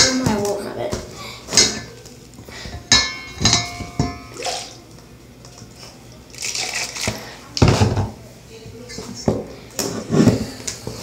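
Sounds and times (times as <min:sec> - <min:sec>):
utensil knocking metal bowl: 0:02.9 - 0:04.4.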